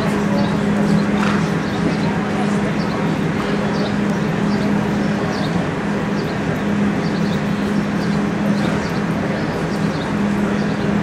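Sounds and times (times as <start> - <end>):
constant low hum: 0.0 - 11.0
droning arena room noise: 0.0 - 11.0.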